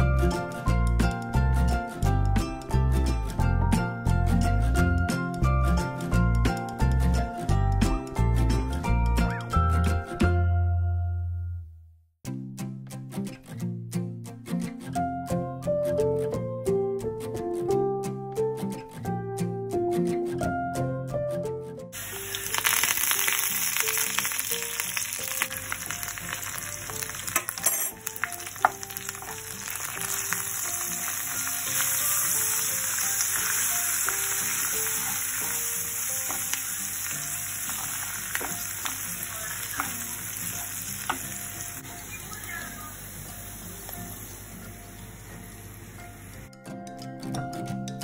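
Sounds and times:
onions sizzling in oil: 22.0 - 46.5.

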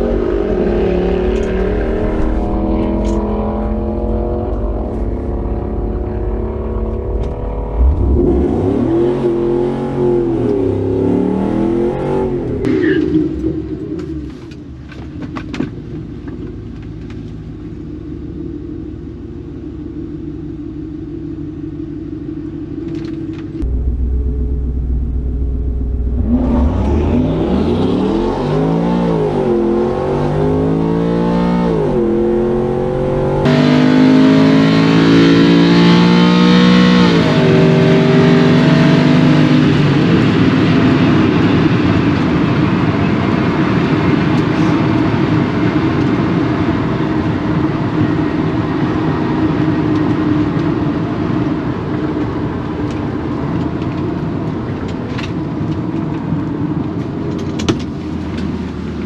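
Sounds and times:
truck engine revving through gears: 0.0 - 13.4, 23.6 - 40.2
road and wind noise: 0.0 - 59.0.

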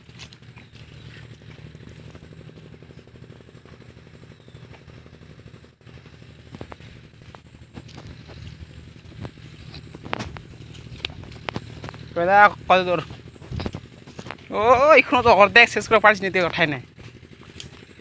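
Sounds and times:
diesel engine running: 0.0 - 18.0
sharp clicks and knocks: 6.5 - 12.2.

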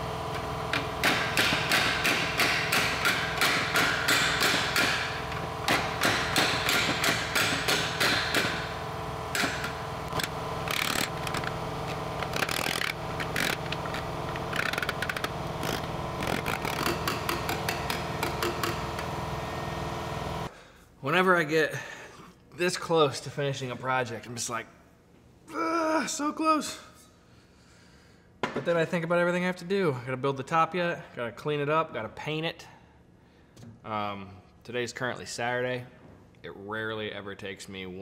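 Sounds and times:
steady hum: 0.0 - 22.4.

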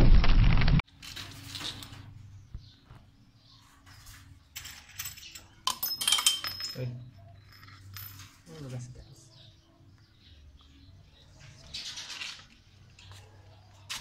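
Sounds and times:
metal bolts clinking: 4.5 - 8.5.

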